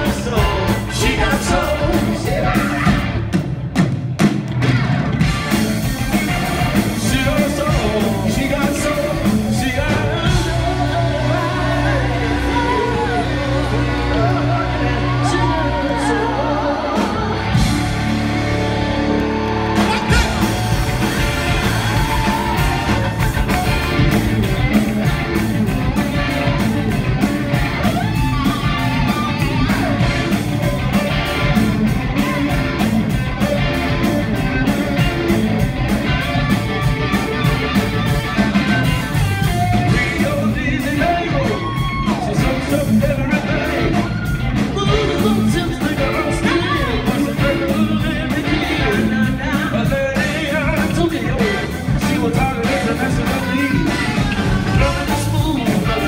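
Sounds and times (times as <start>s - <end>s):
person singing: 0.0s - 3.2s, 6.5s - 18.2s, 38.6s - 56.0s
drums: 0.0s - 56.0s
electric bass: 0.0s - 56.0s
electric guitar: 0.0s - 56.0s.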